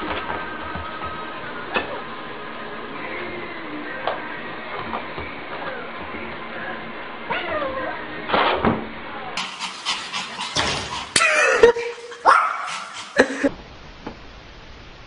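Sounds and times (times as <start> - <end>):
puppy yapping: 9.4 - 13.5
low steady hiss: 11.8 - 15.0.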